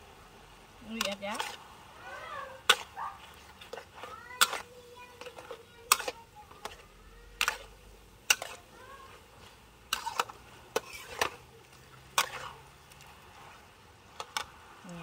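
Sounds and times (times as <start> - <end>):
metal spatula scraping a wok: 0.9 - 1.7, 2.6 - 12.7.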